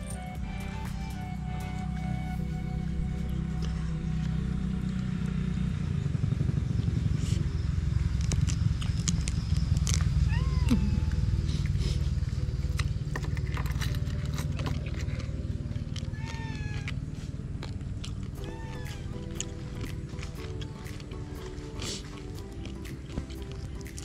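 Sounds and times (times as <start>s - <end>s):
low steady rumble: 0.0s - 24.0s
cat meowing: 10.3s - 11.4s, 16.1s - 17.0s, 18.4s - 19.3s.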